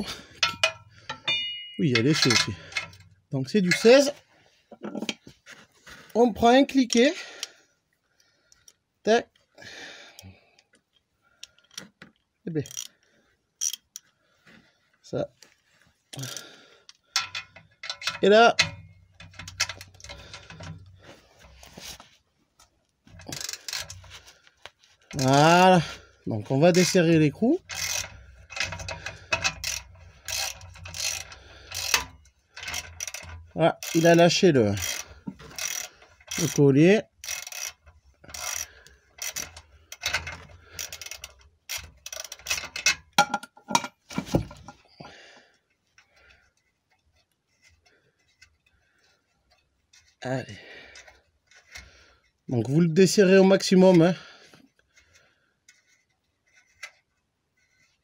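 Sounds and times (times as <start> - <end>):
hand ratchet clicking: 0.0 - 3.1, 12.6 - 12.9, 13.6 - 14.0, 16.2 - 21.0, 23.1 - 24.2, 25.1 - 25.8, 26.7 - 43.3, 50.9 - 51.9.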